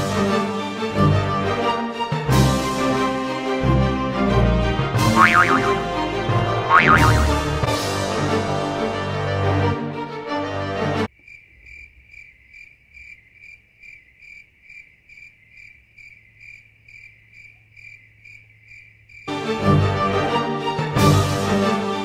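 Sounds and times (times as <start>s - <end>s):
music: 0.0s - 11.1s, 19.3s - 22.0s
cricket chirping: 11.1s - 19.3s.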